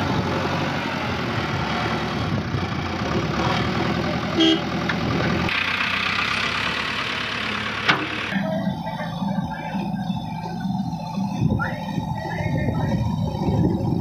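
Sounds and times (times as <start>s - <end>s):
diesel engine running: 0.0s - 14.0s
tractor engine running: 0.0s - 14.0s
horn toot: 4.4s - 4.6s.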